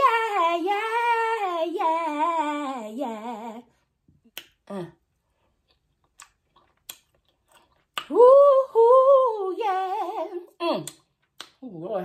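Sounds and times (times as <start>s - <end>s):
woman singing wordless vocal run: 0.0s - 3.8s, 8.0s - 10.9s.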